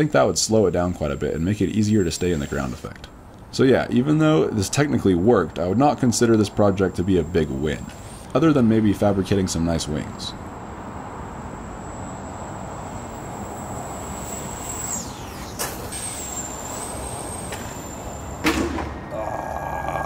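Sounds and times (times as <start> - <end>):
high electric motor whine: 0.0 - 3.2, 10.3 - 20.0
sharp knock: 18.4 - 19.0.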